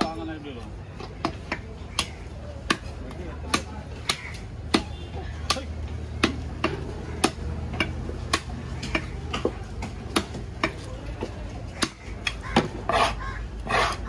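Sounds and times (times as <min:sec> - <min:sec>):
loud rasping noises: 0:11.7 - 0:14.0.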